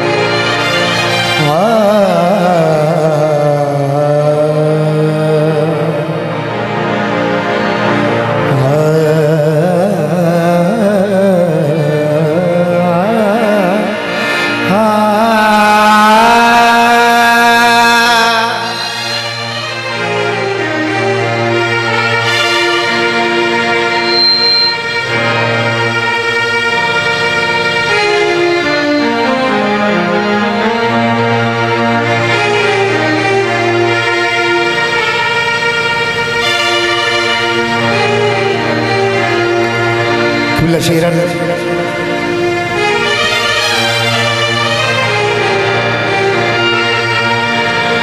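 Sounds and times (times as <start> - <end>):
harmonium: 0.0 - 48.0
man singing ornamented notes: 1.4 - 6.4, 8.5 - 19.4.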